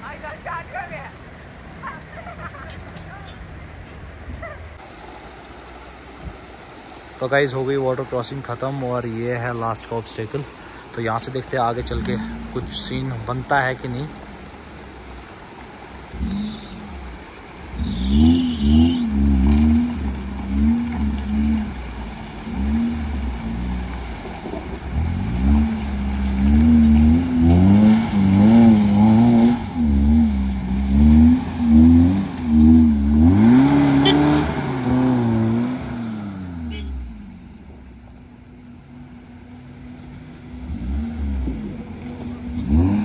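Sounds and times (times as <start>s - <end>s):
engine revving: 16.1s - 37.5s, 40.4s - 43.0s.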